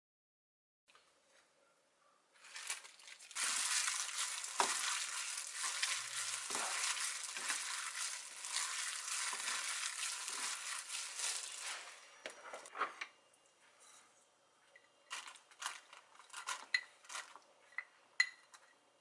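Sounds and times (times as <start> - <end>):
tofu squishing: 2.4 - 11.9
plastic glove crinkling: 2.4 - 12.0.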